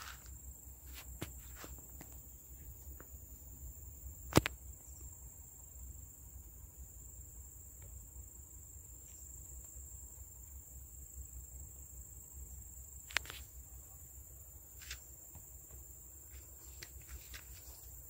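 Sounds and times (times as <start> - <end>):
high-pitched insect trill: 0.0 - 18.0
sharp click: 4.3 - 4.6.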